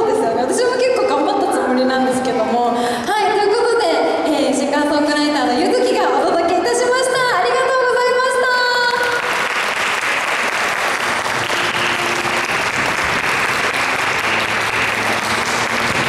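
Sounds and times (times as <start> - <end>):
woman speaking into microphone: 0.0 - 9.1
audience applauding: 8.9 - 16.0.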